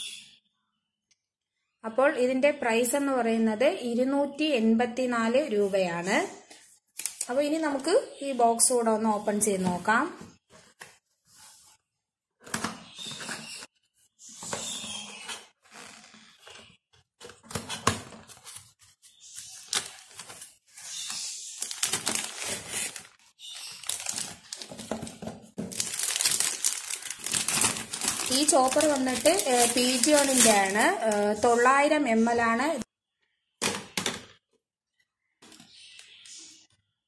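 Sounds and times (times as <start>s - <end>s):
plastic crinkling: 17.3s - 31.6s.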